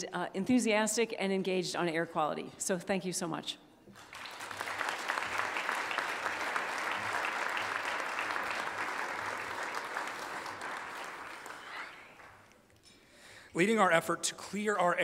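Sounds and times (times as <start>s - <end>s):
audience applause: 4.0s - 12.5s.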